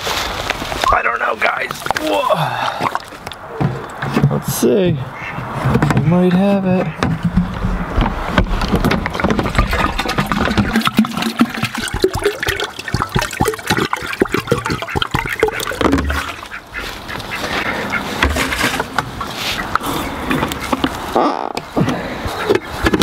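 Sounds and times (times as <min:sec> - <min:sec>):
water glugging from jug: 0:01.6 - 0:03.9, 0:08.4 - 0:16.7
ducks quacking: 0:05.0 - 0:07.5, 0:09.2 - 0:22.8.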